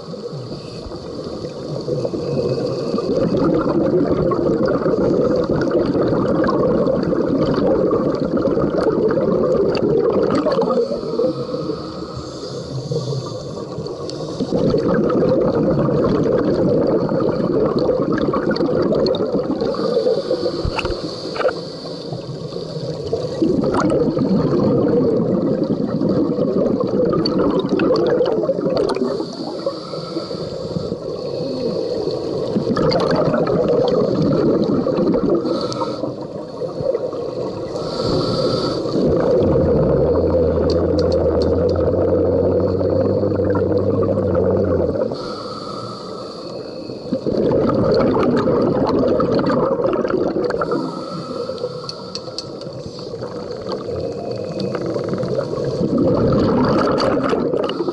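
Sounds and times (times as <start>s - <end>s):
regulator hissing inhalations: 0.0s - 3.2s, 10.6s - 14.7s, 19.6s - 23.6s, 29.0s - 32.7s, 35.4s - 39.1s, 45.0s - 47.3s, 50.5s - 55.9s, 57.6s - 57.9s
exhaled bubbles gurgling underwater: 0.0s - 57.9s.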